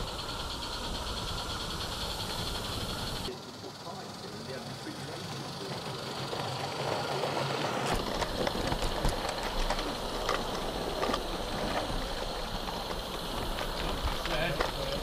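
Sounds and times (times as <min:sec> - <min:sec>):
train wheels rumbling on track: 0:00.0 - 0:15.0
sharp clicks and clacks: 0:04.0 - 0:15.0.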